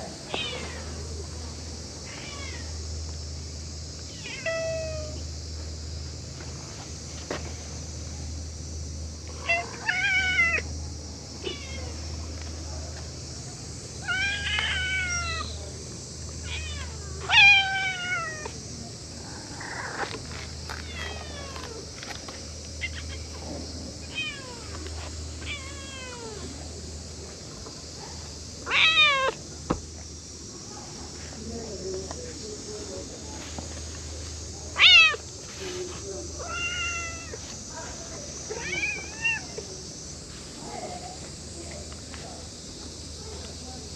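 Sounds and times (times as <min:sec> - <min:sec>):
cats meowing: 0:00.3 - 0:01.0, 0:02.0 - 0:02.8, 0:04.1 - 0:05.2, 0:09.4 - 0:10.7, 0:11.4 - 0:12.0, 0:14.0 - 0:15.6, 0:16.4 - 0:18.6, 0:19.4 - 0:22.0, 0:22.8 - 0:26.7, 0:28.6 - 0:29.4, 0:34.7 - 0:35.4, 0:36.4 - 0:37.4, 0:38.5 - 0:39.7.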